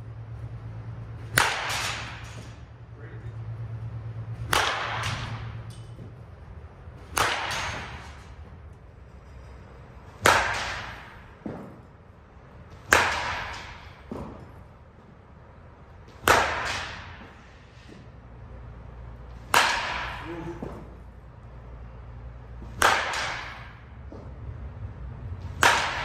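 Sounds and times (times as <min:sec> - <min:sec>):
bat striking softballs: 0:01.1 - 0:02.7, 0:04.3 - 0:15.1, 0:15.9 - 0:18.2, 0:19.2 - 0:21.1, 0:22.4 - 0:24.5, 0:25.3 - 0:26.0.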